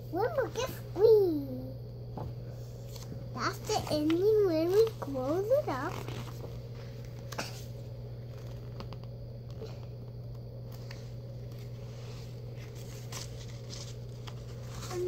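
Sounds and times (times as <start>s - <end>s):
low hum: 0.0s - 15.0s
book pages rustling and clicking: 2.2s - 15.0s.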